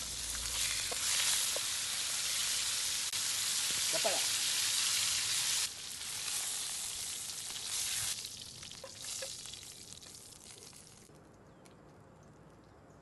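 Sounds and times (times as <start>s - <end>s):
steaks sizzling in a skillet: 0.0s - 8.2s.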